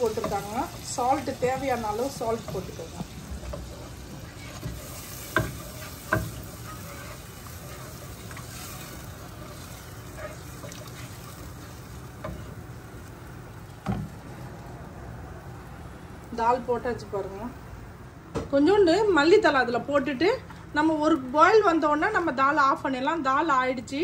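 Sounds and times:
wooden spoon stirring in saucepan: 0.0 - 12.7
low sizzle: 0.0 - 18.1
spoon knocking against pan: 4.6 - 6.5.

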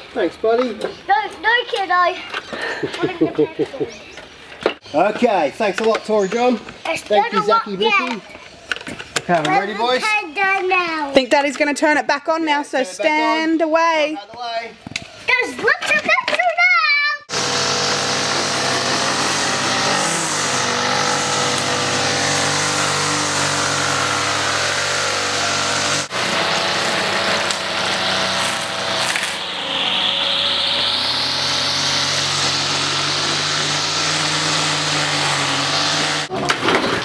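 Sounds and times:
small petrol engine running: 17.3 - 37.0.

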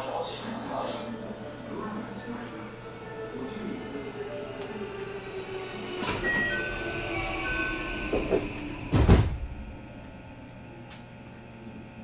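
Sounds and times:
train doors sliding shut: 5.9 - 9.7.

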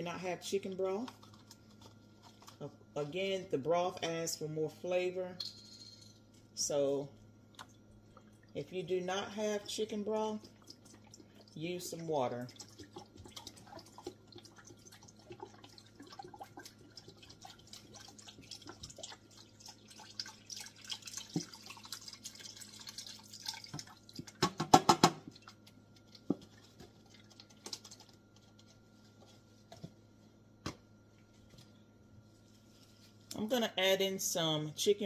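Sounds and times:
liquid dripping: 7.4 - 29.9.

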